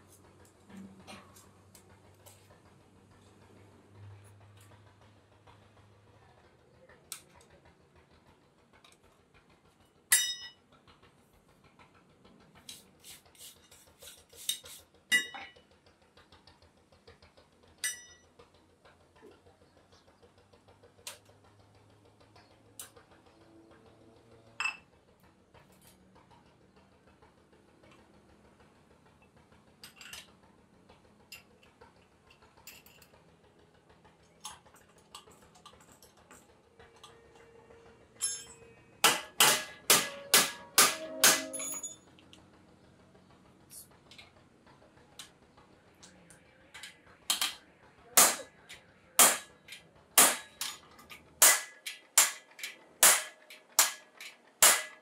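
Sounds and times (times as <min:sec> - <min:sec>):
metal parts and tools clinking: 0:10.1 - 0:10.6, 0:13.4 - 0:15.6, 0:17.8 - 0:18.2, 0:29.8 - 0:30.3, 0:32.3 - 0:33.2, 0:38.1 - 0:38.8, 0:39.6 - 0:42.2, 0:49.4 - 0:54.4.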